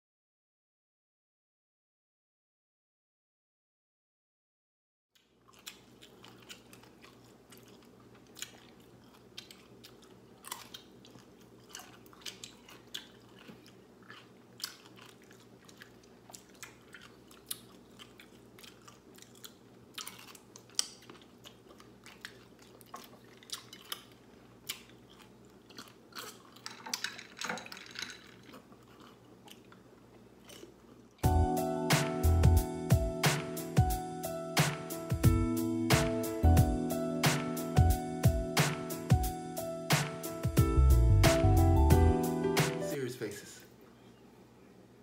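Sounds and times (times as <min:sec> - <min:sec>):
pickles crunching while chewed: 0:05.2 - 0:31.2
faint steady hum: 0:05.2 - 0:45.0.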